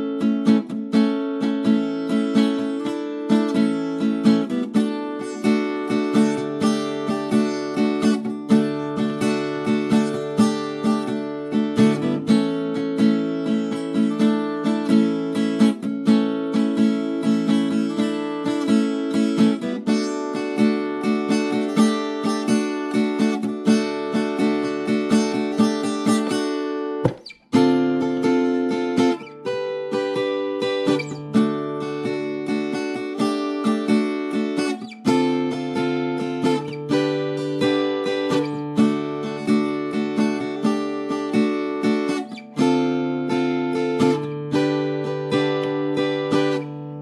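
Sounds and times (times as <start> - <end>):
acoustic guitar strumming: 0.0 - 47.0.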